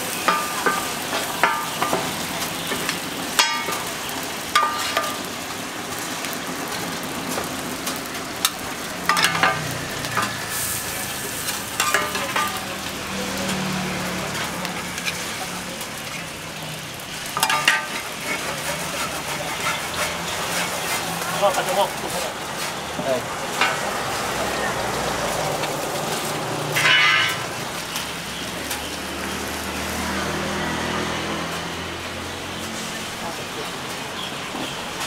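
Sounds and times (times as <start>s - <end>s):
noodles sizzling on a pan: 0.0s - 35.0s
spatula clinking on pan: 0.2s - 2.1s, 4.5s - 5.2s, 11.8s - 12.7s, 17.4s - 18.4s
metal spatulas scraping: 4.6s - 5.2s, 17.4s - 22.8s, 26.8s - 27.4s.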